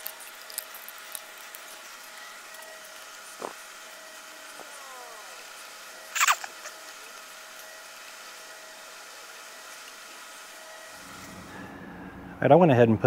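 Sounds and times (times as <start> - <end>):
o-rings being stretched: 0.0 - 7.0.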